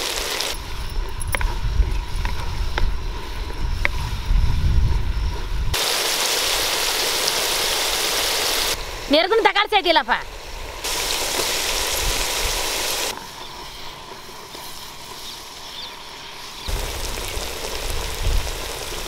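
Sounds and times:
onions sizzling in oil: 0.0s - 0.6s, 5.7s - 13.1s, 14.3s - 19.0s.

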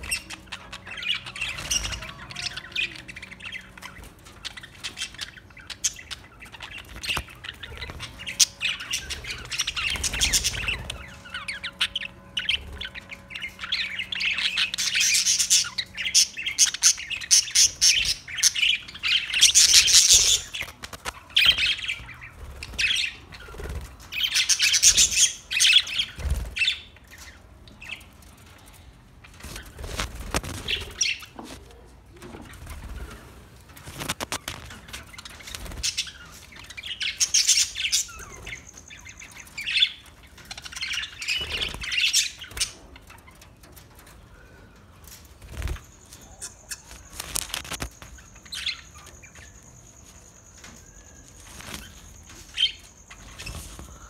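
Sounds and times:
budgerigars chattering: 0.0s - 28.1s, 34.0s - 43.5s.

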